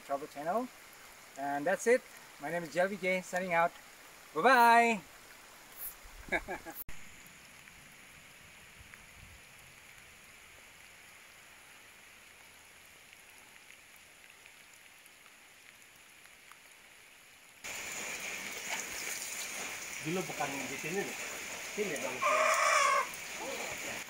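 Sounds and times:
faint hiss of water: 0:00.0 - 0:24.0
bright hiss: 0:17.6 - 0:24.0.

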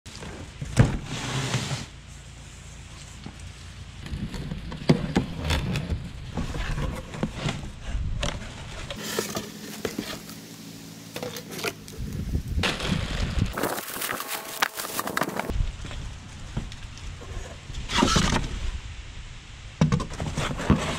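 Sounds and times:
cardboard flaps scraping and knocking: 0:04.0 - 0:10.3, 0:19.8 - 0:20.9
cardboard rustling: 0:06.0 - 0:10.4, 0:11.2 - 0:15.5.

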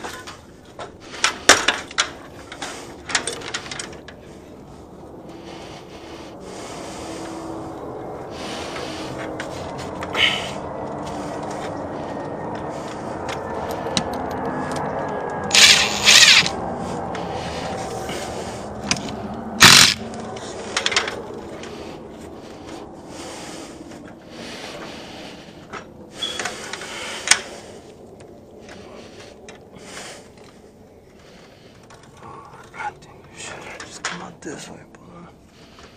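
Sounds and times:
cable scraping on wall: 0:08.4 - 0:22.6
cordless driver whirring: 0:15.5 - 0:16.5.

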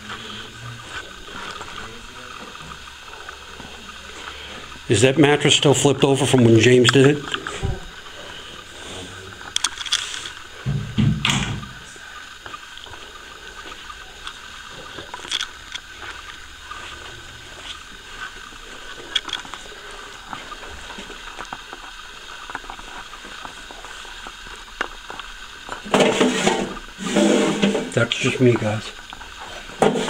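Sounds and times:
quiet footsteps: 0:00.0 - 0:05.2, 0:06.3 - 0:25.9
steady hiss: 0:00.0 - 0:30.0
handling knocks: 0:10.6 - 0:11.8
loud thump: 0:10.6 - 0:11.8.

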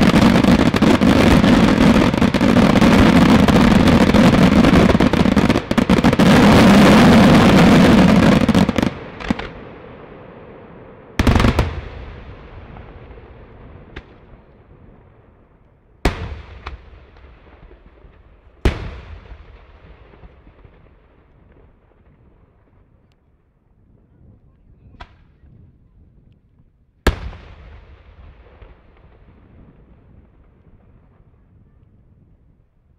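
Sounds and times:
fireworks bangs: 0:00.0 - 0:10.0, 0:11.1 - 0:15.0, 0:16.0 - 0:22.7, 0:27.1 - 0:31.6.

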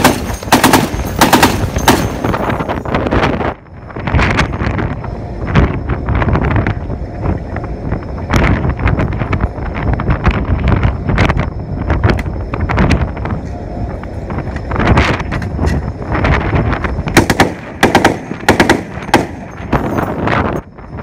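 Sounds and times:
machine gun firing bursts: 0:00.0 - 0:02.5, 0:17.2 - 0:19.8
wind rumble on microphone: 0:00.0 - 0:21.0.

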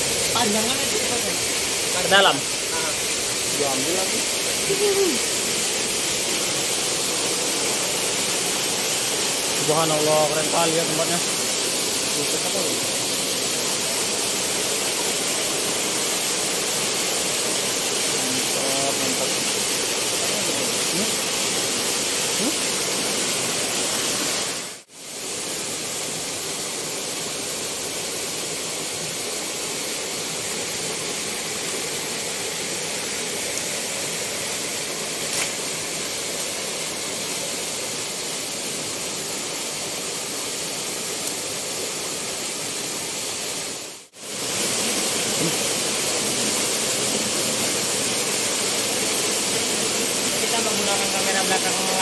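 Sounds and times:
waterfall rushing: 0:00.0 - 0:52.0.

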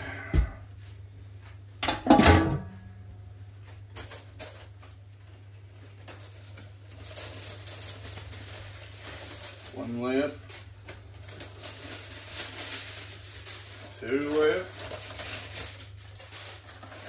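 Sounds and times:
metal pan lid clanking: 0:01.8 - 0:02.7
foil crinkling: 0:03.7 - 0:17.0.

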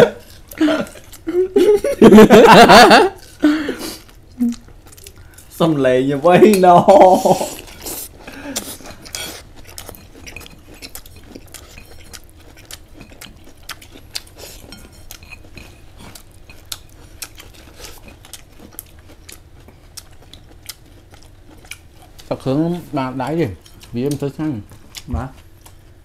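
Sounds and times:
utensils clinking on dishes: 0:14.6 - 0:16.6.

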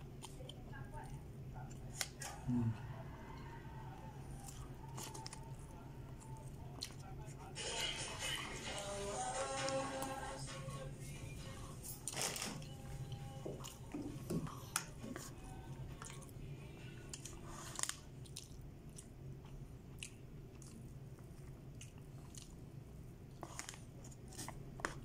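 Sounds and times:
faint low hum: 0:00.0 - 0:25.0
chewing and biting food: 0:04.1 - 0:07.6, 0:12.0 - 0:25.0.

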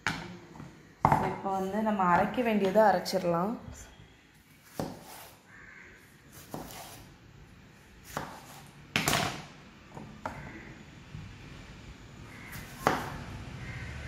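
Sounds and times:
knife cutting tomatoes: 0:04.6 - 0:05.4, 0:06.3 - 0:07.2, 0:08.0 - 0:08.8.

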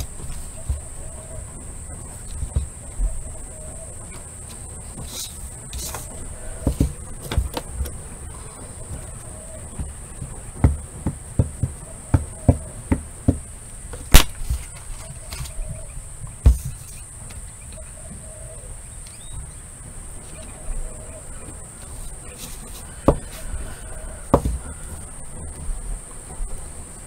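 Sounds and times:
steady high-pitched whine: 0:00.0 - 0:27.0
rubber stamp taps and knocks: 0:09.8 - 0:14.3, 0:24.3 - 0:24.7
thump: 0:16.3 - 0:16.8, 0:24.3 - 0:24.7.

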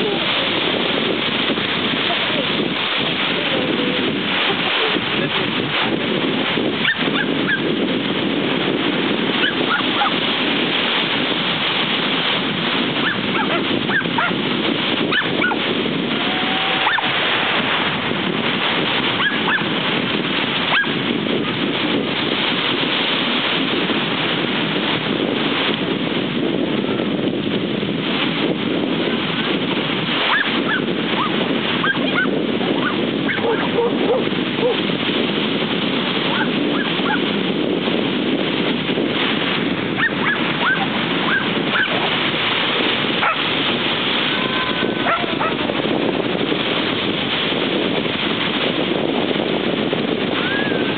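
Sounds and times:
small waves washing on beach: 0:00.0 - 0:50.9
wind on microphone: 0:00.0 - 0:50.9.

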